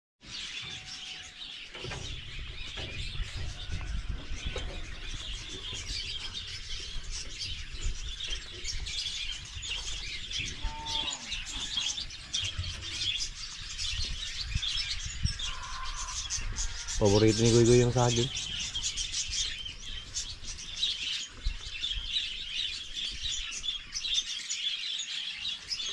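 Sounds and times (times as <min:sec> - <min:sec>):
small birds chirping: 0:00.2 - 0:25.9
handling noise rumble: 0:01.7 - 0:09.1
low bird call: 0:10.4 - 0:13.0.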